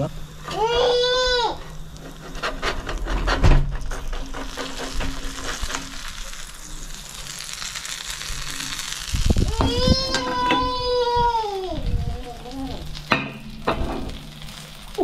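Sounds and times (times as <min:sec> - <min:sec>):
fish sizzling on hot plate: 0:00.0 - 0:15.0
metal spatula scraping a hotplate: 0:00.4 - 0:06.5.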